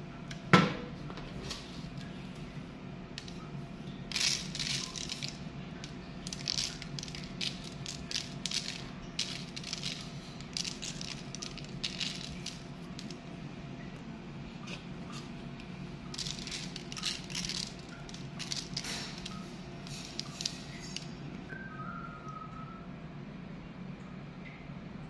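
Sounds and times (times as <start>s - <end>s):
steady low hum: 0.0s - 25.0s
seeds scattering on a tray: 4.1s - 5.4s, 6.2s - 13.2s, 16.1s - 21.0s.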